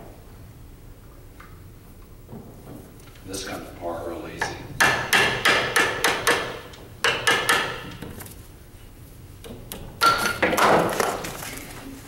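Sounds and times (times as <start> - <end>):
chisel knocks on wood: 4.8 - 8.2.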